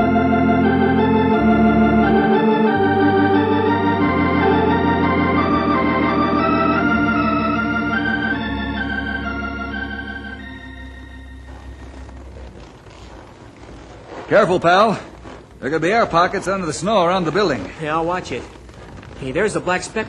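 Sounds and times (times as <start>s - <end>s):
organ chords: 0.0s - 13.8s.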